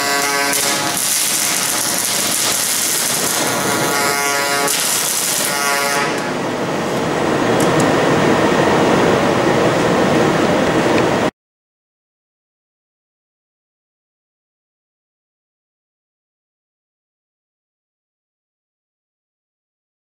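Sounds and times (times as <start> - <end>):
welding arc crackling: 0.0 - 7.9
low rushing noise: 6.2 - 11.3.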